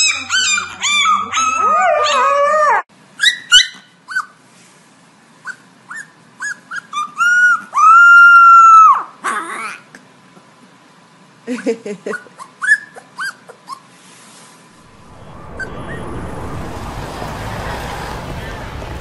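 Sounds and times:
puppy yipping and howling: 0.0 - 4.4, 5.5 - 9.8, 12.4 - 13.8
dogs howling together: 0.6 - 2.8.

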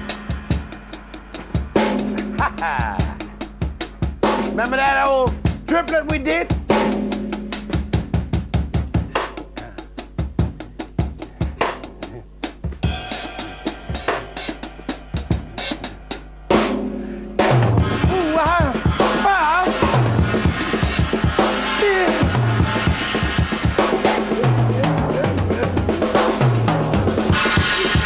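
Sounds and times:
cymbals ringing: 0.0 - 7.7, 12.8 - 28.0
drum kit groove: 0.0 - 28.0
wordless vocal line: 18.0 - 20.4, 21.4 - 23.2, 23.9 - 26.4.

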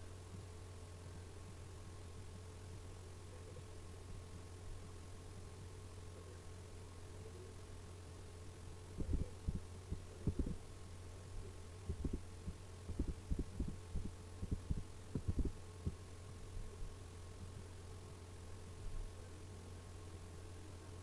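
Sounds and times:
low electrical hum: 0.0 - 21.0
soft low thumps: 9.0 - 10.7, 11.3 - 18.2.

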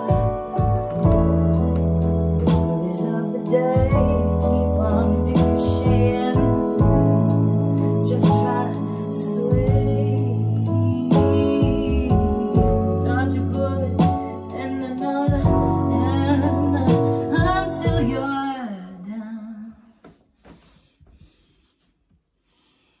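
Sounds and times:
recorded beat with heavy bass: 0.0 - 8.8, 9.5 - 14.3, 15.3 - 15.9
woman singing into a microphone: 0.0 - 20.0.

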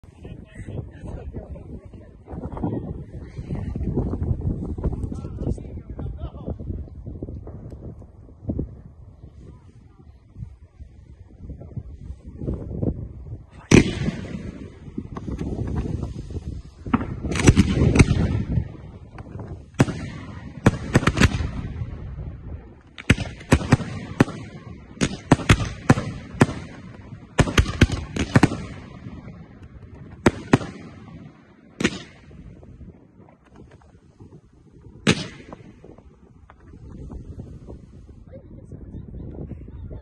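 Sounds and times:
fireworks bursting: 12.2 - 38.2.

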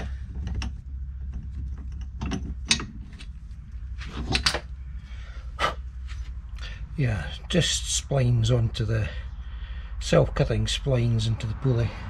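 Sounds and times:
metallic clicks and knocks: 0.0 - 3.4, 4.1 - 4.7
low steady hum: 0.0 - 12.0.

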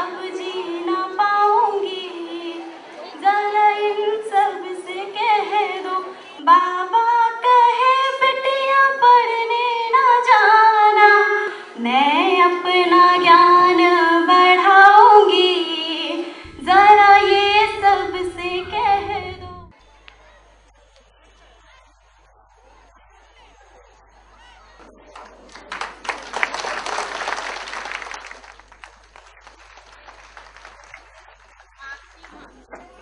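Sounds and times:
woman singing: 0.0 - 19.7
low hum: 16.4 - 19.8.

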